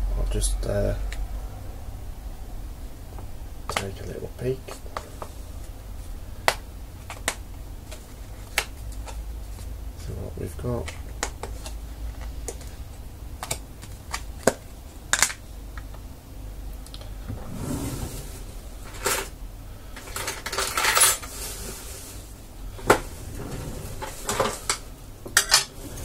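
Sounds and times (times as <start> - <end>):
plastic rustling: 17.0 - 26.0.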